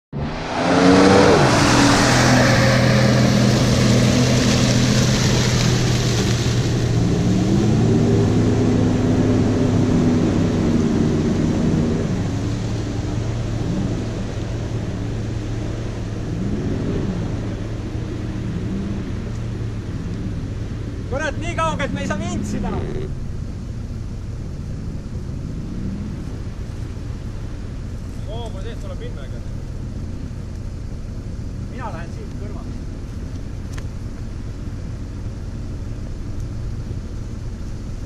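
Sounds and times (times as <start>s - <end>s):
engine revving in mud: 0.1s - 23.4s, 24.5s - 30.6s.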